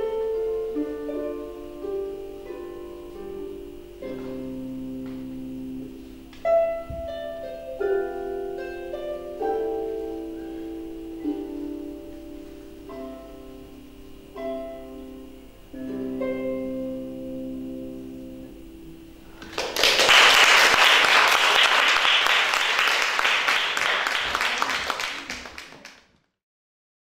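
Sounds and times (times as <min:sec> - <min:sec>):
harp chords: 0:00.0 - 0:19.4
audience applause: 0:19.4 - 0:26.2.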